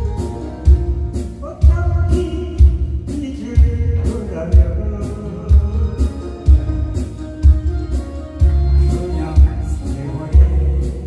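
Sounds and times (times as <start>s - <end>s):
backing track with heavy bass beat: 0.0s - 11.0s
man singing into a microphone: 1.4s - 7.0s, 8.6s - 11.0s.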